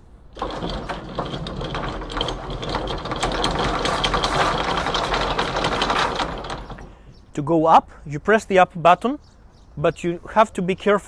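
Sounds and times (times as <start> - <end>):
anchor chain clattering: 0.4 - 7.2.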